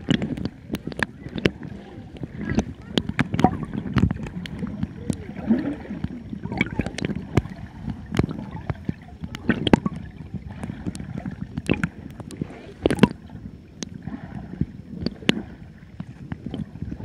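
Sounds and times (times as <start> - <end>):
gurgling bubbles: 0.0 - 17.0
sharp underwater clicks: 0.0 - 17.0
underwater churning water: 0.0 - 17.0.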